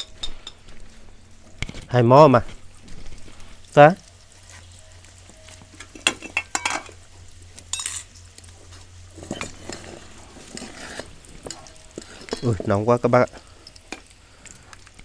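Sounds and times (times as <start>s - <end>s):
metal utensil scraping a pan: 5.4s - 7.0s, 9.1s - 12.8s.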